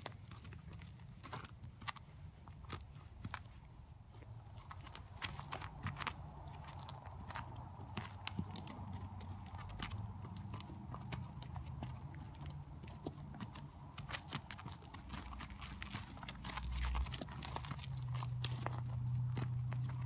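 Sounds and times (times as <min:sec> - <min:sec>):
horse hooves crunching on gravel: 0:00.0 - 0:20.0
low steady rumble: 0:00.0 - 0:20.0.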